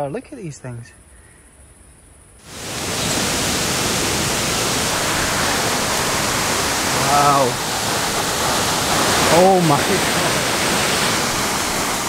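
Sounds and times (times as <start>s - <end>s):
large waterfall rushing: 2.4s - 12.0s.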